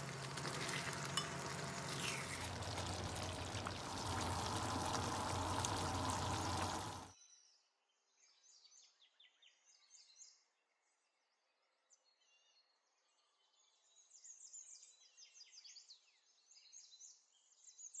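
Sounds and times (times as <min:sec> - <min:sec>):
sauce bubbling in frying pan: 0:00.0 - 0:07.2.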